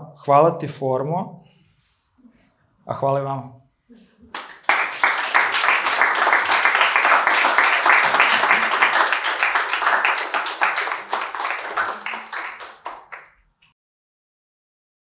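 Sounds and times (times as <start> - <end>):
audience applauding: 4.3 - 13.4.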